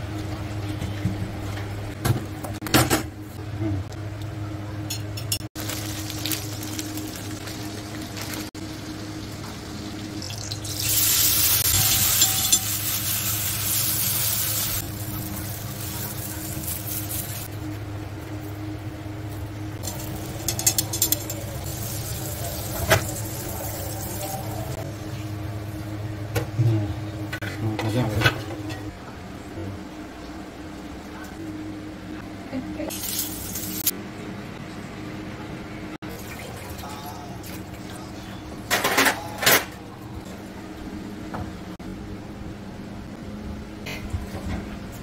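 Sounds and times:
steady low hum: 0:00.0 - 0:45.0
butter sizzling on hot pan: 0:05.6 - 0:17.5.

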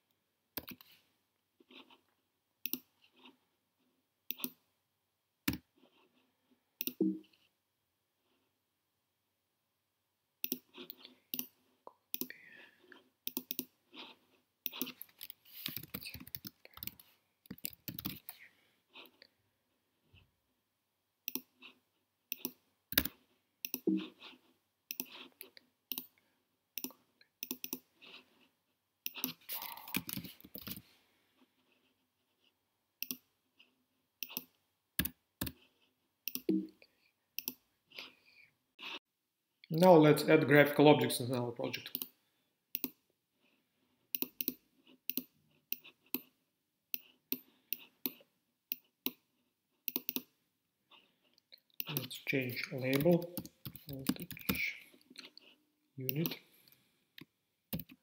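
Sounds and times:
computer mouse clicks: 0:00.6 - 0:01.0, 0:02.6 - 0:03.3, 0:04.3 - 0:04.6, 0:06.8 - 0:07.2, 0:10.4 - 0:12.3, 0:13.3 - 0:13.7, 0:14.6 - 0:18.4, 0:21.3 - 0:21.6, 0:22.3 - 0:24.0, 0:24.9 - 0:26.2, 0:26.8 - 0:27.9, 0:29.0 - 0:30.8, 0:33.0 - 0:33.3, 0:34.2 - 0:35.6, 0:36.3 - 0:36.6, 0:37.4 - 0:37.6, 0:41.9 - 0:43.0, 0:44.1 - 0:46.3, 0:49.9 - 0:50.3, 0:51.8 - 0:54.7, 0:57.2 - 0:58.0
keyboard typing: 0:00.6 - 0:01.0, 0:13.3 - 0:18.4, 0:22.3 - 0:24.3, 0:26.8 - 0:27.9, 0:29.0 - 0:30.8, 0:49.9 - 0:50.3, 0:51.8 - 0:55.5, 0:57.7 - 0:58.0.

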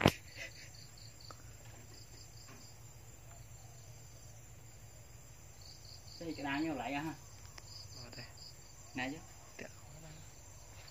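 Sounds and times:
crickets chirping: 0:00.0 - 0:10.9.

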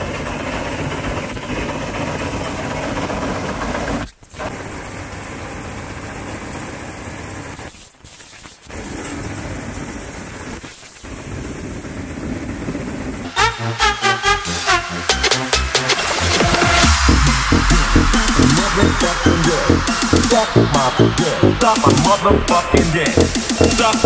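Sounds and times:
combine harvester running: 0:00.0 - 0:04.0, 0:13.7 - 0:24.0.

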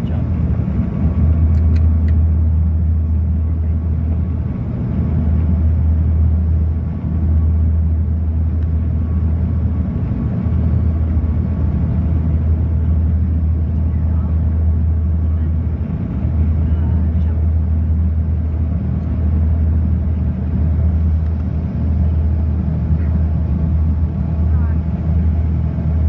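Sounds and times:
propeller drone and engine rumble: 0:00.0 - 0:26.0.

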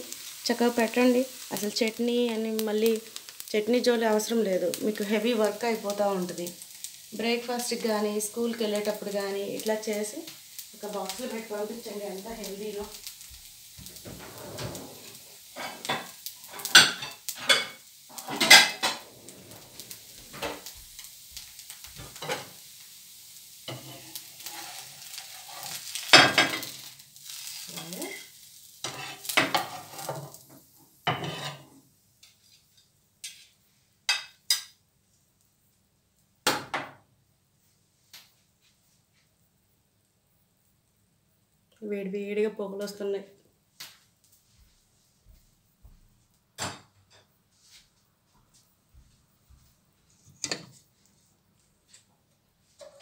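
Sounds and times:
food sizzling in a pan: 0:00.0 - 0:53.0
metal spatula scraping pan: 0:13.8 - 0:20.7, 0:23.7 - 0:30.4, 0:31.0 - 0:34.3.

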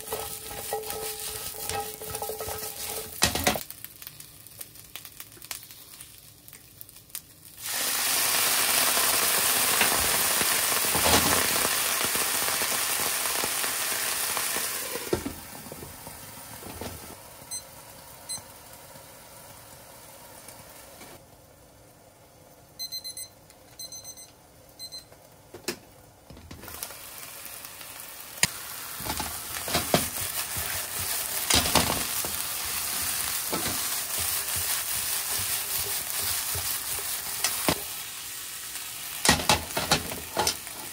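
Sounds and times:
spatula scraping and knocking: 0:00.0 - 0:03.6
food sizzling in frying pan: 0:00.0 - 0:22.0, 0:26.6 - 0:40.9
kitchen timer beeping: 0:17.5 - 0:18.5, 0:22.8 - 0:25.1.

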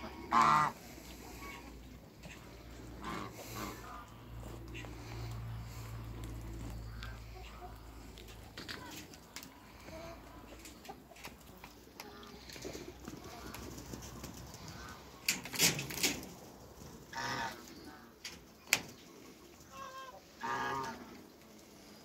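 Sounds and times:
poultry calling: 0:00.0 - 0:15.4, 0:17.1 - 0:18.4, 0:19.0 - 0:22.0
sharp knocks and rattles: 0:13.6 - 0:17.0.

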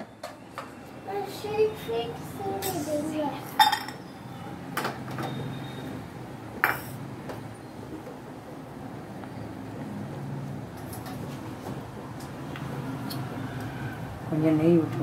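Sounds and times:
metal cookware clinking: 0:03.6 - 0:04.0.

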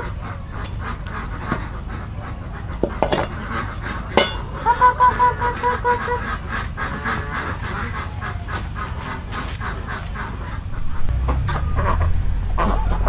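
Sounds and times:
poultry calling: 0:00.0 - 0:13.0
low rumble: 0:10.5 - 0:13.0.

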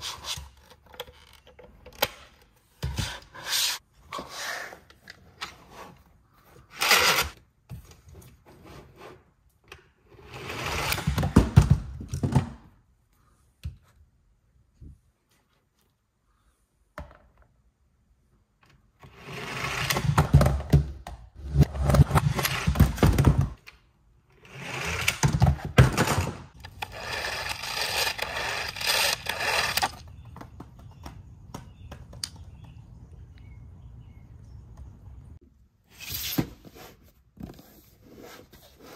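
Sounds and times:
toy launcher whirring: 0:06.8 - 0:07.4, 0:26.6 - 0:30.0.

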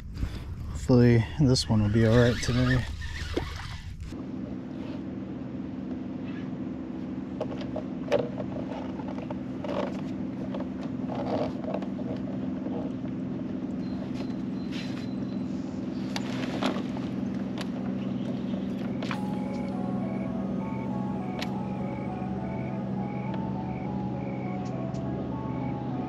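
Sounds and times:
motor humming: 0:08.6 - 0:26.0.

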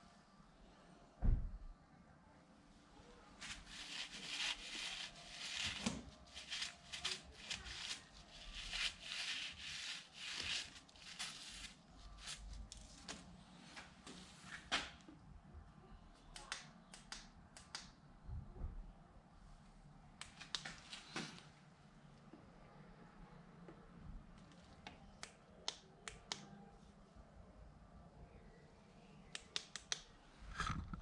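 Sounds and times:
hand rubbing strokes: 0:03.4 - 0:12.5.

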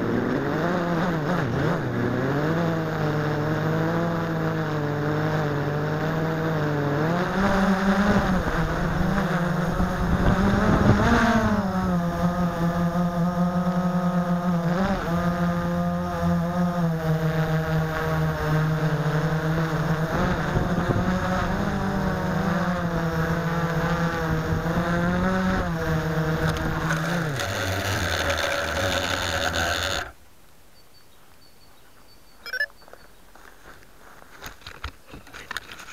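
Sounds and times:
quadcopter motors humming: 0:00.0 - 0:30.2, 0:32.4 - 0:32.8.

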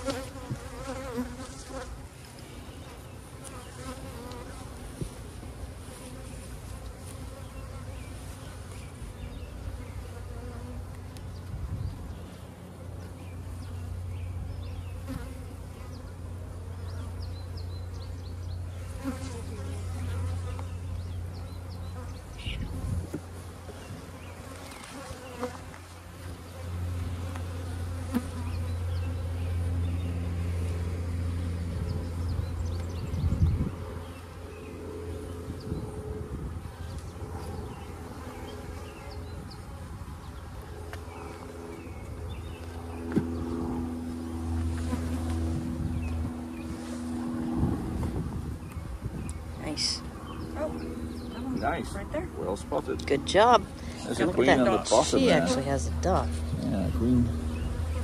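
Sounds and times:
honeybees buzzing: 0:00.0 - 0:58.0
steady low hum: 0:00.0 - 0:58.0.

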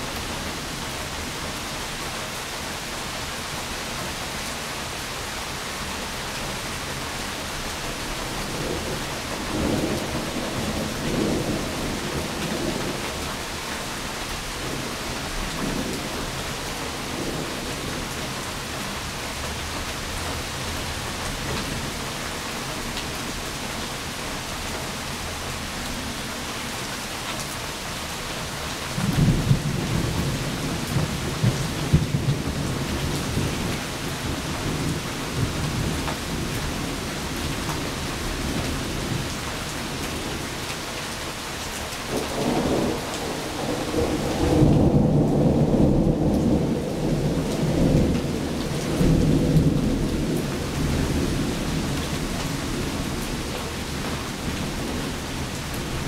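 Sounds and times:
steady rain on wet street: 0:00.0 - 0:56.0
thunder rumbling: 0:29.0 - 0:37.3, 0:42.1 - 0:56.0.

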